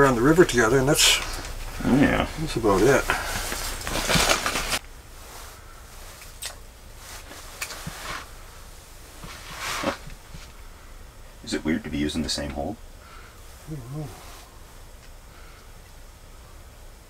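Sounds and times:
loud rustle: 0.0s - 6.4s, 7.0s - 10.6s
faint steady hiss: 0.0s - 17.0s.

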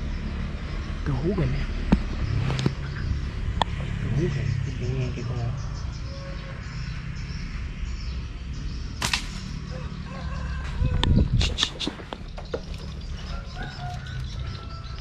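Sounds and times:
knocks and rustles: 11.4s - 14.4s.

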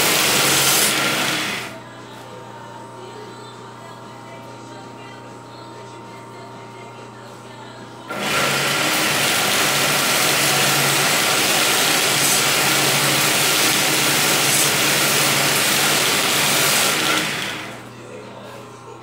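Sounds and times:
belt sander running: 0.0s - 1.8s, 8.1s - 17.9s.

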